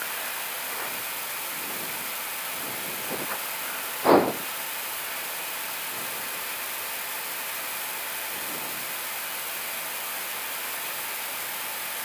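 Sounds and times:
aircraft cockpit engine hiss: 0.0s - 7.1s, 7.7s - 9.1s.

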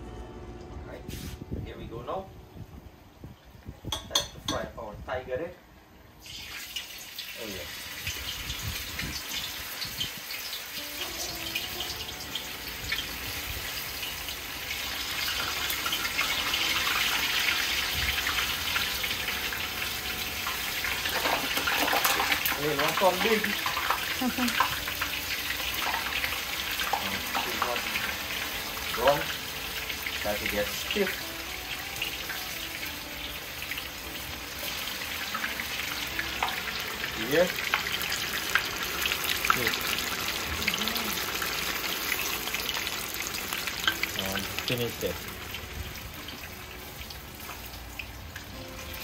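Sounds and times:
dough frying in hot oil: 6.2s - 49.0s.

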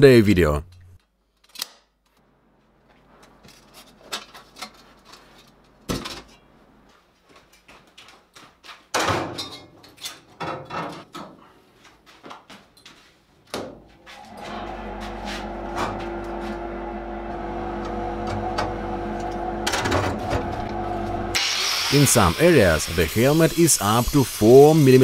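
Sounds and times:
objects knocking and clunking: 8.9s - 11.5s, 17.8s - 20.8s.

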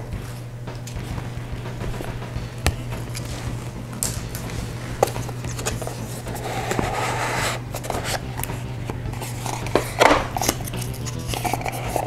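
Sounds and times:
steady low hum: 0.0s - 12.0s
cardboard lid sliding and rubbing: 4.6s - 8.6s.

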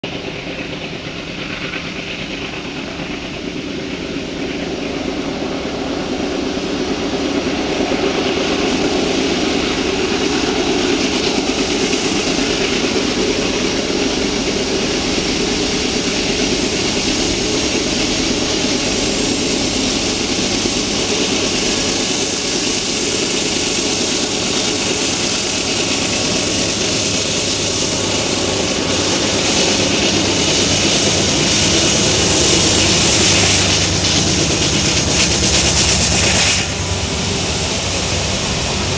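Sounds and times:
diesel locomotives running hard: 0.0s - 38.9s.

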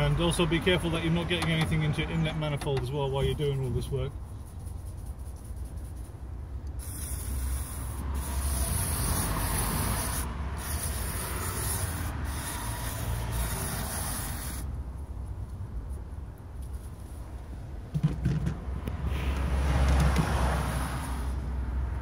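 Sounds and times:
spray can hissing: 6.7s - 14.7s.

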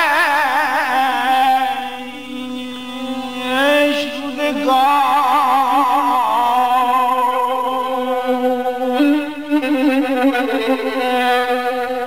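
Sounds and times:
person singing: 0.0s - 12.0s
solo violin with vibrato: 7.3s - 12.0s.

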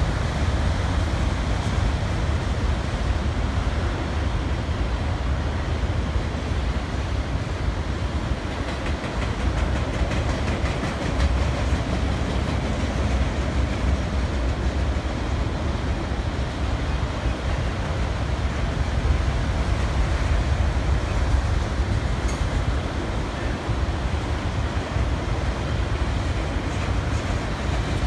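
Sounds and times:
train wheels rumbling on rails: 0.0s - 28.0s.

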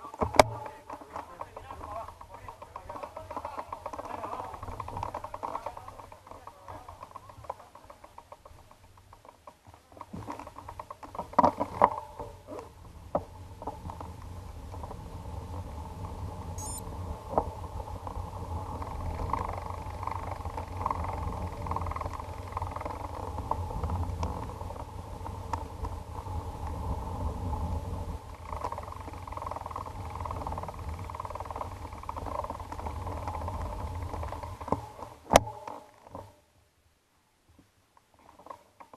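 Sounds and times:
bicycle rolling over tiled paving: 0.0s - 36.4s, 38.1s - 38.9s
bicycle knocks and clicks: 0.2s - 12.4s.

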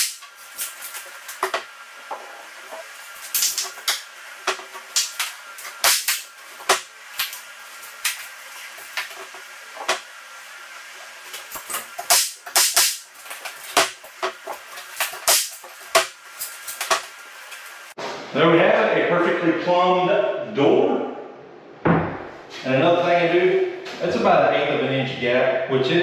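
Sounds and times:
pneumatic nail gun shots: 0.0s - 0.2s, 5.8s - 6.9s, 12.0s - 13.1s, 15.2s - 16.1s.

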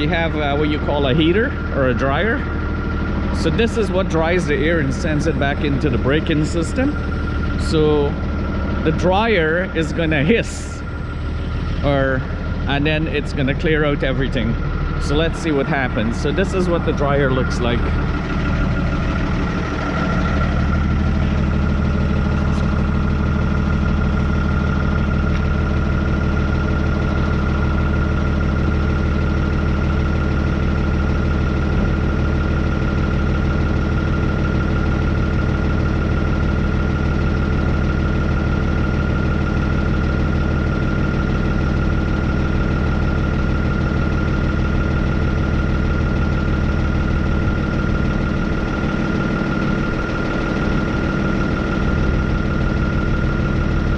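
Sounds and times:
high-pitched whine: 0.0s - 29.7s
diesel engine idling: 0.0s - 53.9s.

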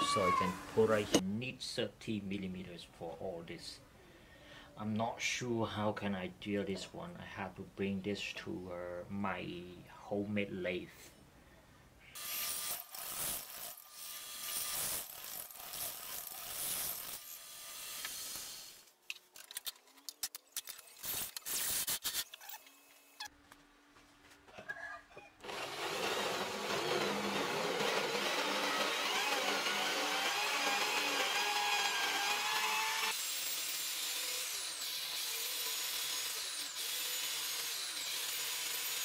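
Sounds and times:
drill press grinding into steel: 25.4s - 35.2s.

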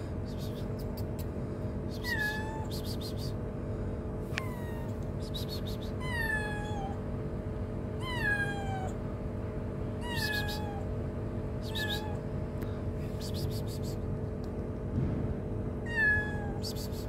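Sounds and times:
steady low hum: 0.0s - 17.0s
kitten meowing: 1.9s - 3.2s, 4.3s - 7.0s, 8.0s - 9.0s, 10.0s - 10.9s, 11.6s - 12.3s, 15.8s - 17.0s.

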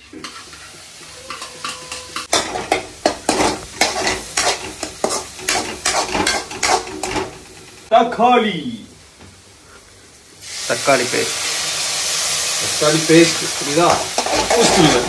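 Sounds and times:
utensil scraping a pan: 0.0s - 7.4s, 13.7s - 15.0s
onions sizzling in a pan: 0.0s - 15.0s.

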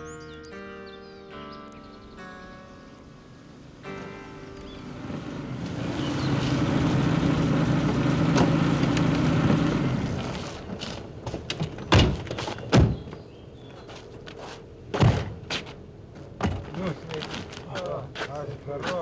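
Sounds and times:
car doors shutting: 7.8s - 13.2s
footsteps: 13.7s - 19.0s.

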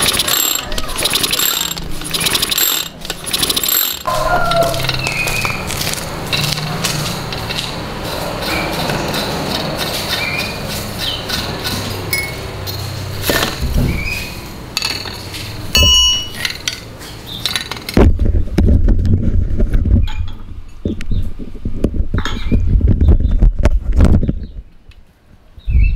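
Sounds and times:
metal clinks: 0.0s - 5.0s, 14.8s - 16.8s.

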